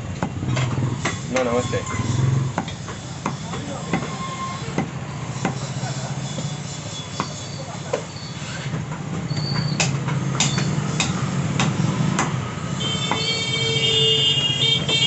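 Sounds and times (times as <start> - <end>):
cleaver chopping meat on wood: 2.5 - 5.7, 9.6 - 12.4, 13.0 - 13.4.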